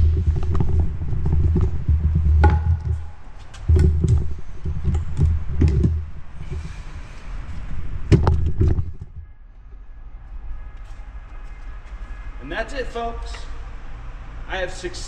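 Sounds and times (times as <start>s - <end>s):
wheelchair frame thumping and rattling: 8.0s - 9.3s.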